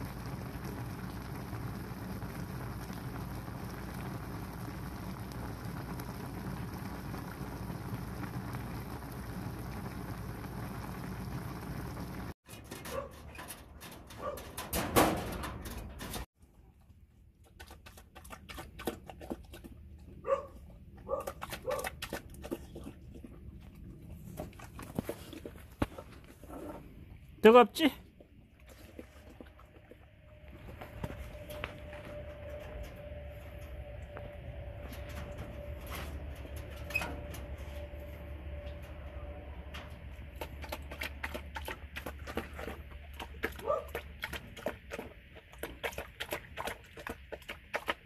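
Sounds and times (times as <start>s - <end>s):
pot of noodles boiling: 0.0s - 12.4s
dog whining and barking: 43.6s - 43.9s.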